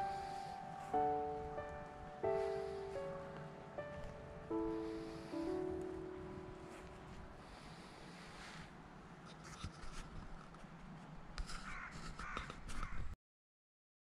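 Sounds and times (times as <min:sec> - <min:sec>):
crows cawing: 0:11.6 - 0:13.1.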